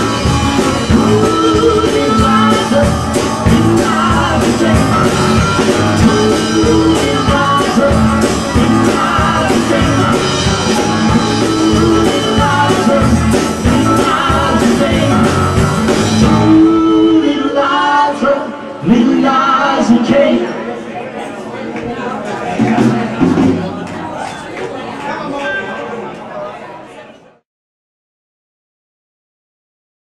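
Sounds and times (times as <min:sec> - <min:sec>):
country-rock band playing: 0:00.0 - 0:18.3
woman singing lead vocal: 0:00.8 - 0:05.2.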